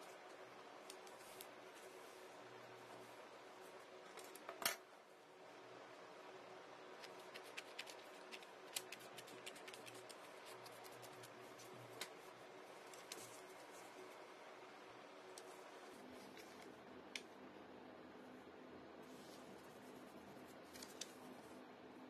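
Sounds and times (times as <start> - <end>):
faint steady hum: 0.0 - 22.0
scissors snipping paper: 7.0 - 12.2.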